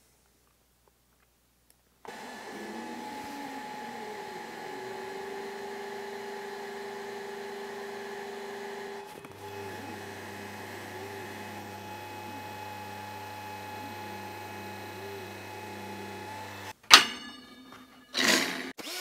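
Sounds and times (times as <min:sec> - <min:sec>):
laser engraver hum and whine: 0:02.1 - 0:16.7.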